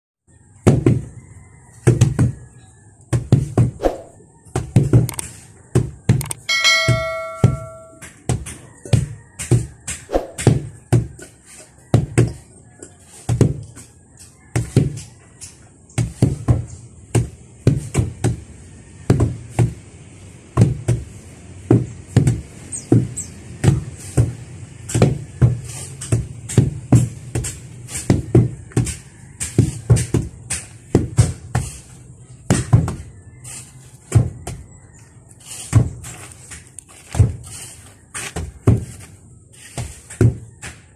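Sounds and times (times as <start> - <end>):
short ringing tone: 6.4 - 8.0
tampers thudding on soil: 35.5 - 40.9.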